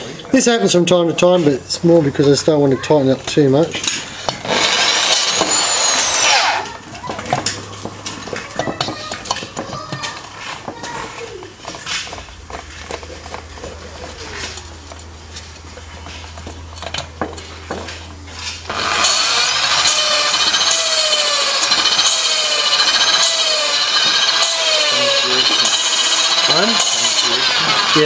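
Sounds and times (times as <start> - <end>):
electric drill grinding rasp: 4.2 - 10.8, 18.4 - 28.0
metal parts clicking and knocking: 11.6 - 17.9.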